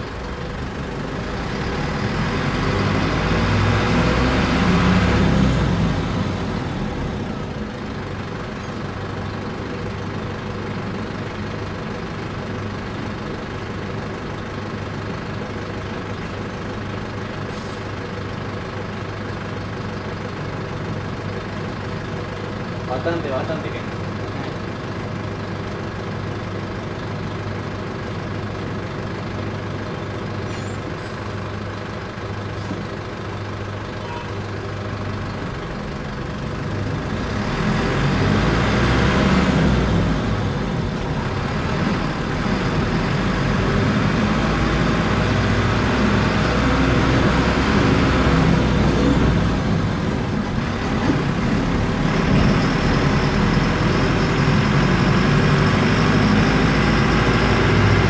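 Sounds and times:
bus diesel engine: 0:00.0 - 0:58.0.

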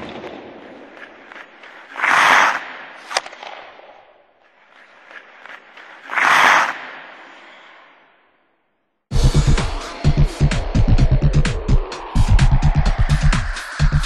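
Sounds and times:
sharp crack: 0:00.0 - 0:07.6
hissing swells: 0:09.7 - 0:14.0.

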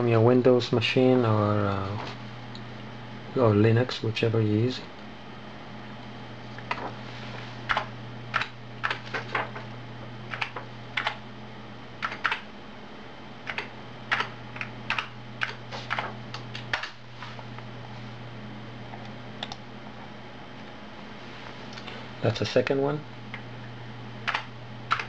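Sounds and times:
steady low hum: 0:00.0 - 0:25.0
keyboard keys clicking: 0:10.3 - 0:11.2, 0:12.0 - 0:12.5, 0:13.4 - 0:17.0, 0:24.2 - 0:25.0.

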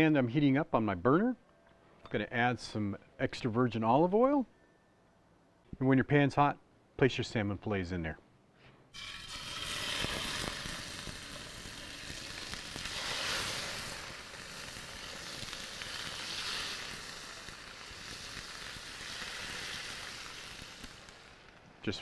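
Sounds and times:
fish sizzling in a frying pan: 0:09.0 - 0:21.5.

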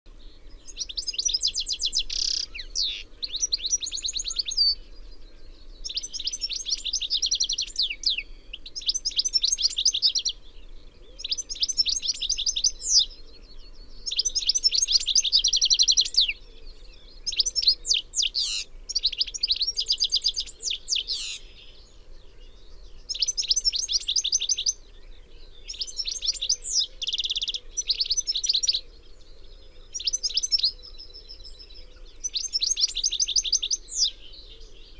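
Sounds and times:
goldfinch twittering and trills: 0:00.2 - 0:34.9.

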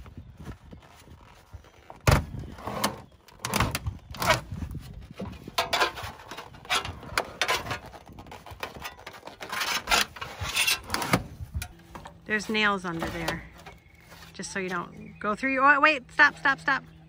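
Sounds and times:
sheet metal crinkling and scraping: 0:00.4 - 0:15.0.

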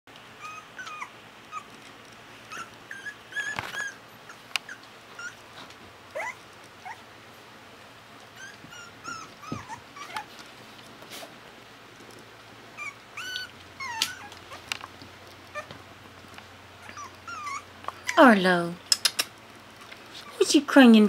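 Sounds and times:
puppies whimpering and whining: 0:00.4 - 0:01.8, 0:02.4 - 0:07.1, 0:08.2 - 0:10.4, 0:12.8 - 0:15.8, 0:16.8 - 0:18.3.

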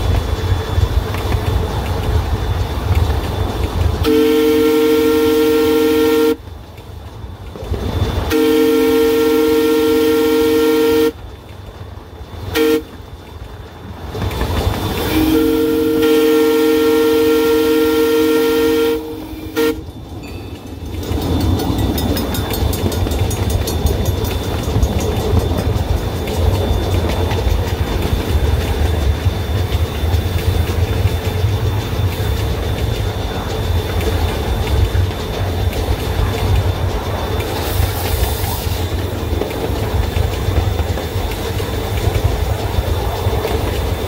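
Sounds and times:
train wheels rumbling on rails: 0:00.0 - 0:44.0
train chime horn: 0:04.0 - 0:06.4, 0:08.2 - 0:11.2, 0:12.4 - 0:13.0, 0:15.0 - 0:20.8.

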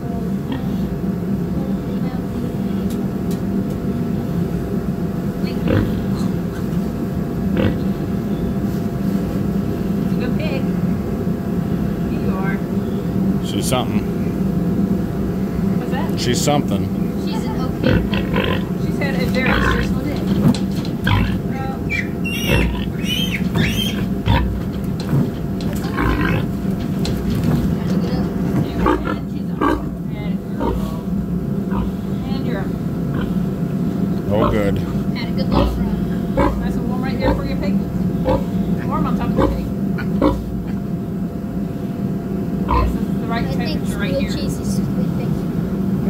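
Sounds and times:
steady low hum: 0:00.0 - 0:46.0
piglets squealing: 0:21.0 - 0:24.5.

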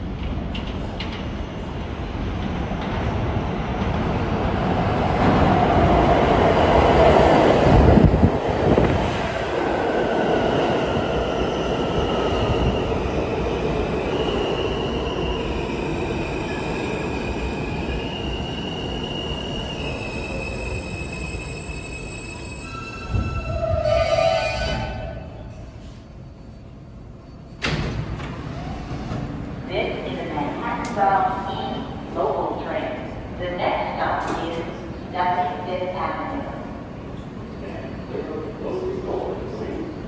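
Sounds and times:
subway train rumble: 0:00.0 - 0:40.0
high squealing train brakes: 0:16.3 - 0:29.2.

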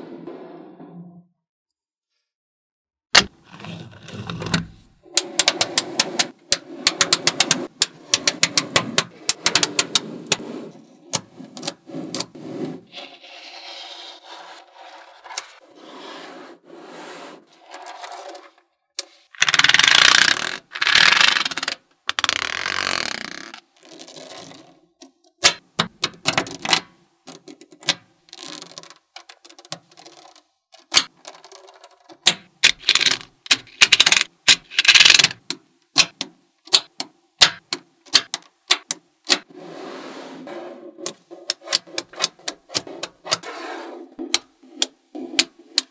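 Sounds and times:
magnetic balls rattling and scraping: 0:03.3 - 0:24.8, 0:27.3 - 0:36.1
magnetic balls clicking together: 0:25.4 - 0:39.4.

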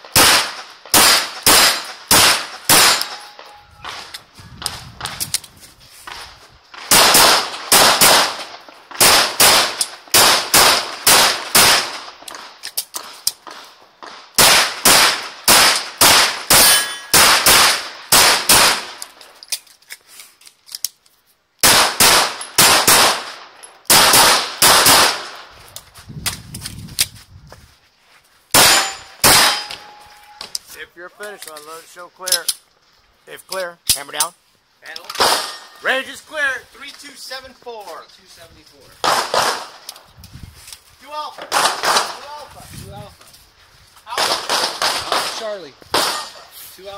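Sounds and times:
pistol fired rapidly: 0:00.1 - 0:03.2, 0:06.9 - 0:08.4, 0:09.0 - 0:12.0, 0:14.4 - 0:19.0, 0:21.6 - 0:25.3, 0:28.6 - 0:29.7.

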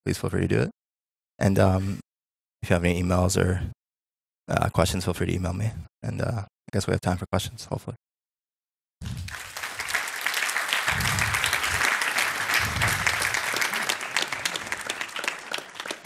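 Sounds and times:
audience applauding: 0:09.0 - 0:16.0.

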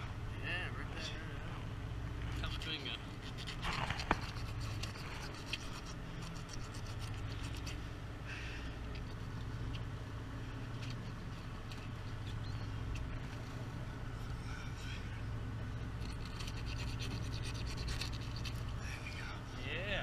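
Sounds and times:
steady low drone: 0:00.0 - 0:20.0
wet scraping and rubbing: 0:02.2 - 0:08.0, 0:08.7 - 0:15.1, 0:15.8 - 0:19.4.

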